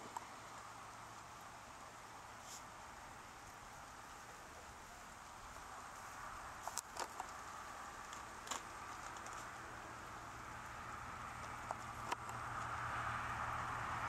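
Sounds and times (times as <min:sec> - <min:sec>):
light rain hissing: 0:00.0 - 0:14.0.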